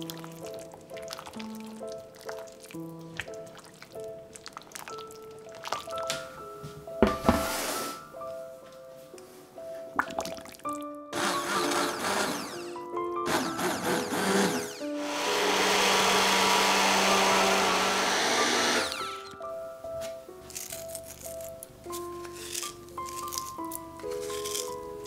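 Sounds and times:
soft background music: 0.0 - 25.0
immersion blender pureeing soup: 11.2 - 19.4.

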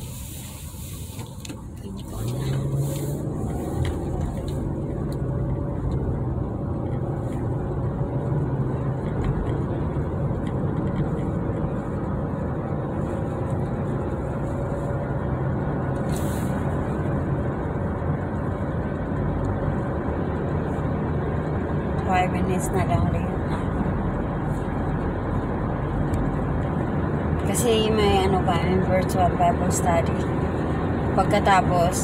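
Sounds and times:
car cabin road and engine noise: 0.0 - 32.0
brief hiss: 16.0 - 16.6.

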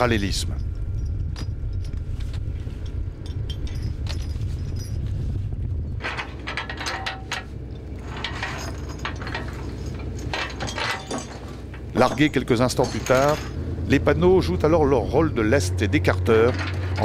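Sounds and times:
chain clinking against metal: 0.0 - 13.6, 16.3 - 17.0
boat engine rumble: 0.0 - 17.0.

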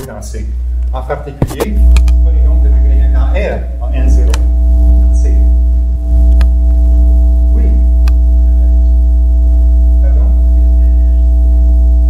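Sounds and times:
electrical hum: 0.0 - 12.0
single click: 4.3 - 4.5.

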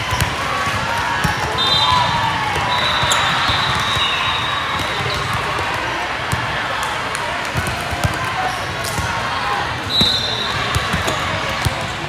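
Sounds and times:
volleyballs thudding: 0.0 - 9.2.

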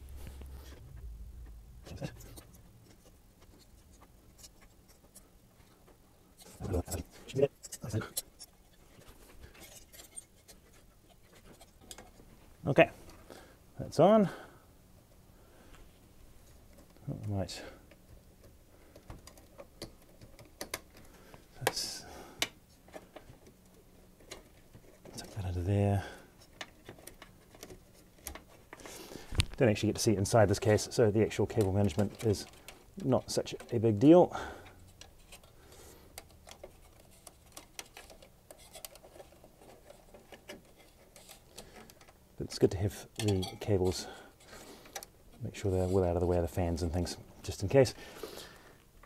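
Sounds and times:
cables clicking and tapping: 16.4 - 25.7, 26.3 - 29.7, 30.3 - 42.2
clicks and taps of computer parts: 17.9 - 21.8.

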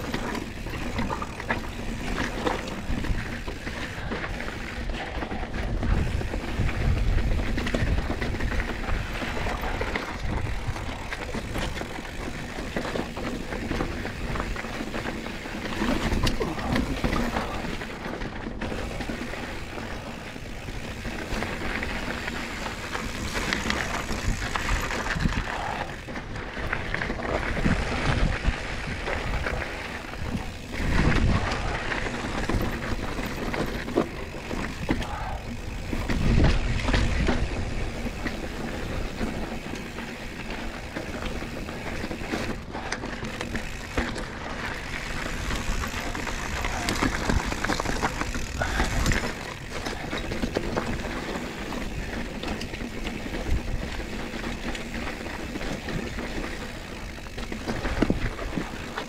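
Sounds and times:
bike tyre noise: 0.0 - 59.0
frame and chain rattling: 29.2 - 59.0.

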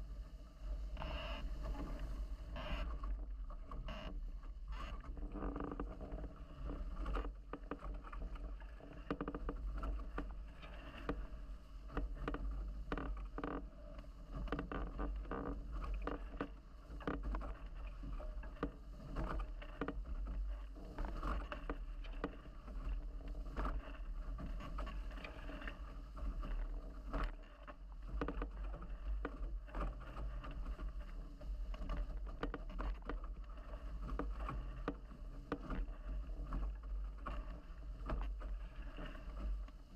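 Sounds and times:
constant low rumble: 0.0 - 39.9
waves slapping against hulls: 4.5 - 39.9.

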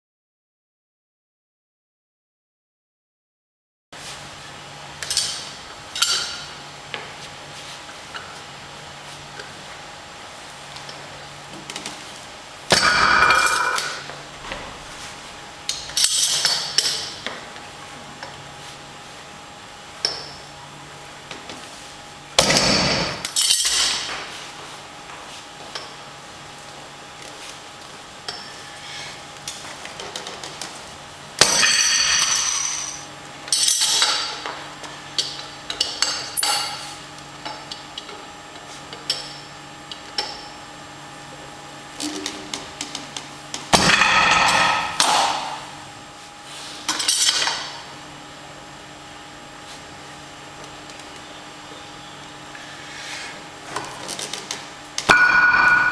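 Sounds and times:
plates clinking: 12.8 - 14.0
weight plates clanging: 55.1 - 55.9.

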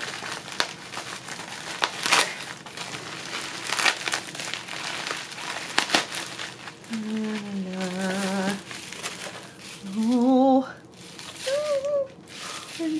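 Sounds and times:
bubble wrap crinkling and crackling: 0.0 - 12.9
woman humming: 6.9 - 8.6, 9.8 - 10.8, 11.4 - 12.2.

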